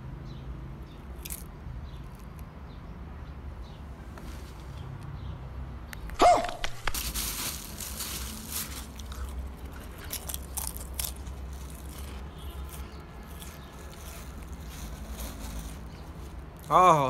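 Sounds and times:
person chewing crunchy snack: 0:01.1 - 0:02.4, 0:06.4 - 0:16.8.

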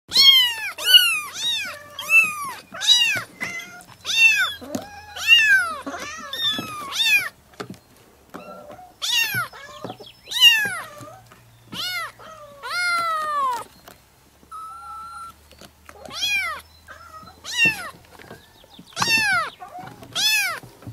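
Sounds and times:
kitten meowing: 0:00.1 - 0:07.3, 0:08.4 - 0:11.1, 0:11.7 - 0:13.6, 0:14.5 - 0:15.4, 0:16.0 - 0:18.0, 0:19.0 - 0:20.6.

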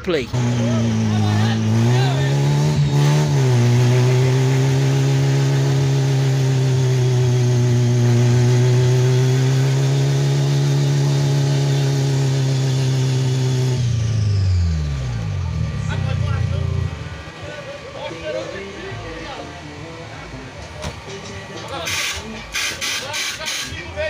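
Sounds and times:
car engine at high revs: 0:00.2 - 0:19.4
tyres spinning hiss: 0:17.0 - 0:24.0.

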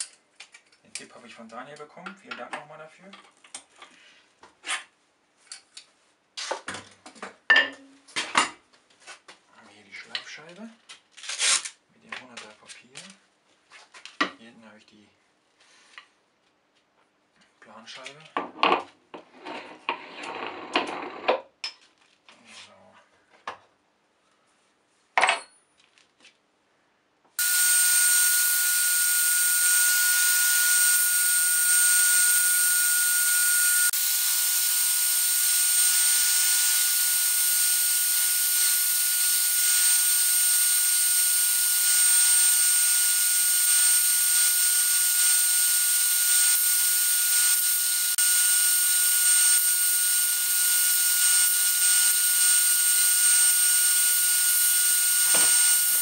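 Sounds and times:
wood grinding on sanding disc: 0:27.4 - 0:56.0.

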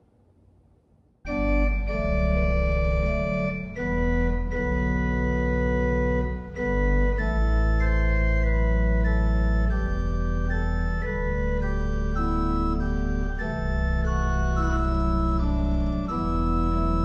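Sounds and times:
deep organ bass pedal notes: 0:01.3 - 0:17.0
organ playing sustained chords: 0:01.3 - 0:17.0.

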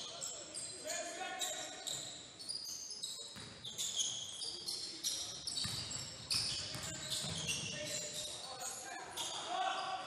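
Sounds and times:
sneakers squeaking on court: 0:00.0 - 0:10.0
basketball bouncing on floor: 0:05.6 - 0:05.8.

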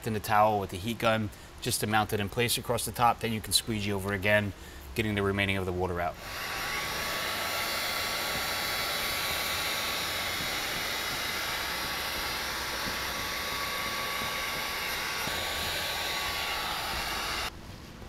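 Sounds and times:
heat gun blowing hot air: 0:06.2 - 0:17.5.

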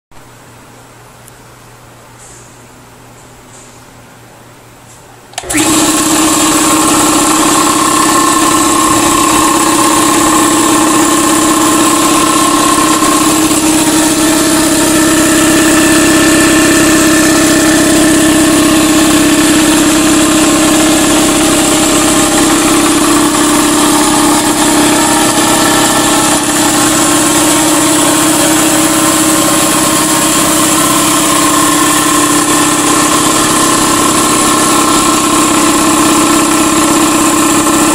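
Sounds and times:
air compressor running: 0:05.3 - 0:37.9.

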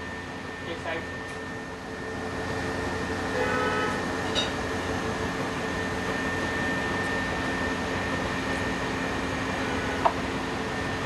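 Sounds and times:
kitchen appliances humming with whine: 0:00.0 - 0:11.0.

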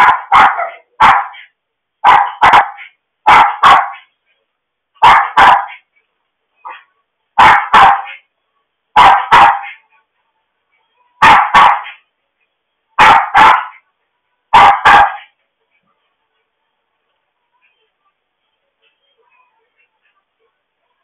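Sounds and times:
dog barking in pairs: 0:00.0 - 0:01.4, 0:02.0 - 0:04.1, 0:05.0 - 0:05.8, 0:07.4 - 0:08.2, 0:09.0 - 0:09.8, 0:11.2 - 0:12.0, 0:13.0 - 0:13.8, 0:14.5 - 0:15.3.

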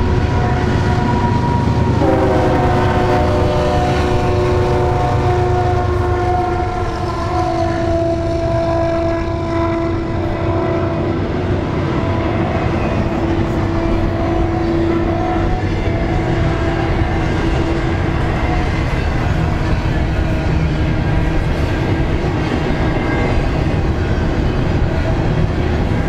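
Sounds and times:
freight train wheels rumbling: 0:00.0 - 0:26.0.

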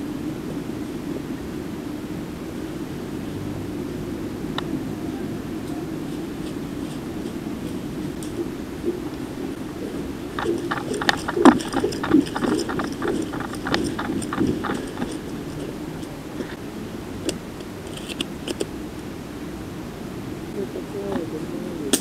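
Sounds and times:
running footsteps on dry leaves: 0:04.9 - 0:16.6
gear rattling: 0:05.6 - 0:16.6, 0:17.3 - 0:18.7.

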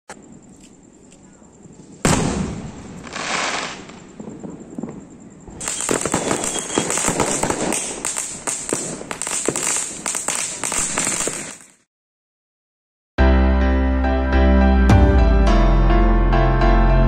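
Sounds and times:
small shells bursting overhead: 0:02.0 - 0:04.0, 0:05.6 - 0:11.9
aerial firework crackling: 0:05.6 - 0:11.8
firecrackers popping rapidly: 0:05.6 - 0:11.9.

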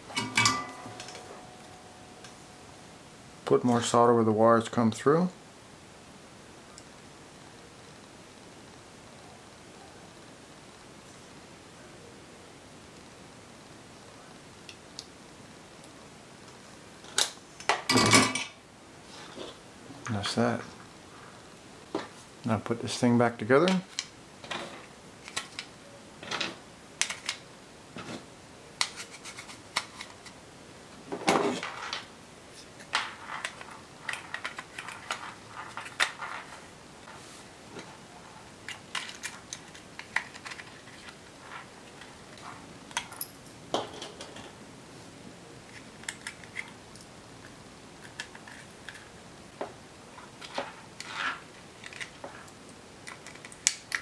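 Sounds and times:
plastic parts clattering: 0:32.8 - 0:36.6, 0:38.7 - 0:43.2, 0:50.3 - 0:52.5
plastic parts clicking and tapping: 0:32.9 - 0:36.6, 0:38.7 - 0:41.2, 0:51.8 - 0:52.4, 0:53.0 - 0:54.0.

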